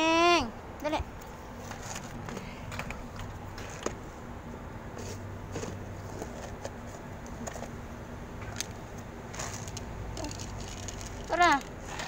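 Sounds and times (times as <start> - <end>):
cat crunching dry kibble: 9.3 - 11.8.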